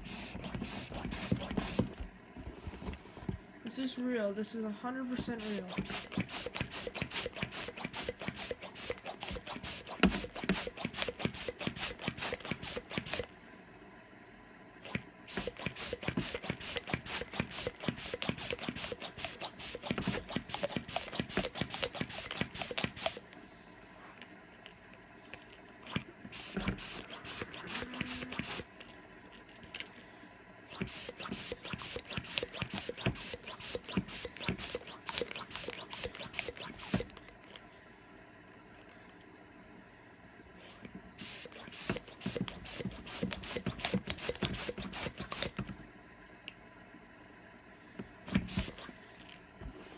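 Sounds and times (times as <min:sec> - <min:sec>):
hand pump puffing air: 0:00.0 - 0:02.1, 0:05.4 - 0:13.3, 0:14.8 - 0:23.2, 0:25.8 - 0:28.7, 0:30.7 - 0:37.2, 0:41.2 - 0:45.7, 0:48.3 - 0:49.0.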